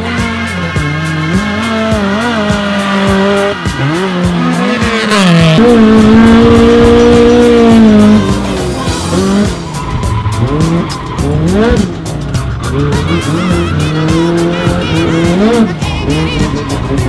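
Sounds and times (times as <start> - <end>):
background music with steady beat: 0.0 - 17.0
car engine revving hard: 0.0 - 17.0
tyre squeal: 0.0 - 17.0.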